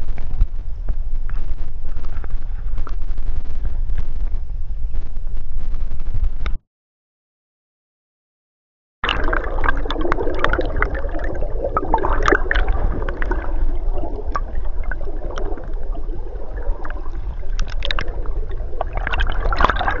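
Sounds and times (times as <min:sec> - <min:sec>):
underwater gurgling and bubbling: 0:09.0 - 0:20.0.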